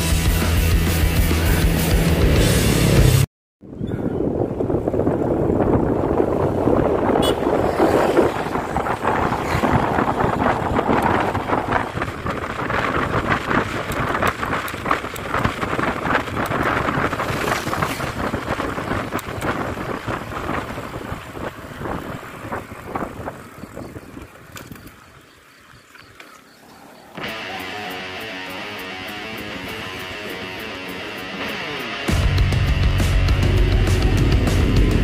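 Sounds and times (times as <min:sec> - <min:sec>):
wind buffeting microphone: 0:03.6 - 0:25.3
tyre noise on asphalt: 0:04.2 - 0:32.2.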